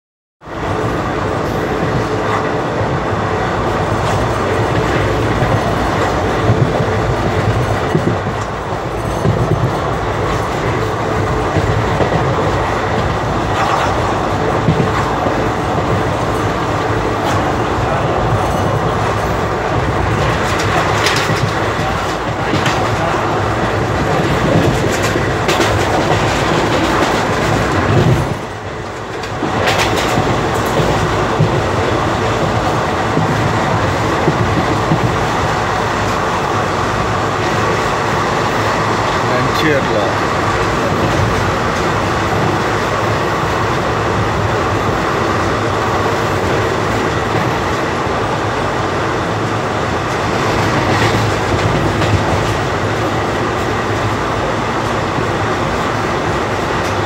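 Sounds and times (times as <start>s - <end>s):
train wheels rumbling on rail: 0.4s - 57.0s
clacks over rail joints: 3.8s - 57.0s.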